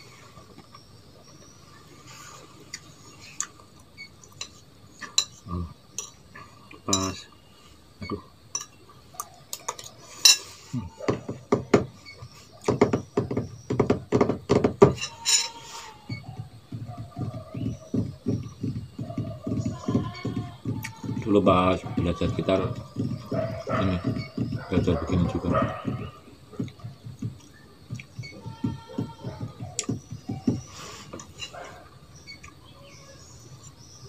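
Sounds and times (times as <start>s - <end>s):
metal spoon scraping a ceramic plate: 15.0s - 15.8s.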